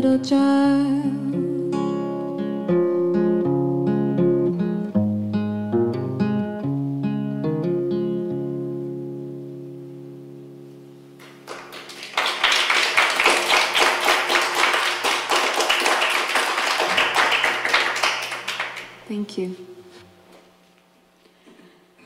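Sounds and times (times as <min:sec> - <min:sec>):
acoustic guitar chord ringing: 0:00.8 - 0:11.5
audience applause: 0:11.2 - 0:19.1.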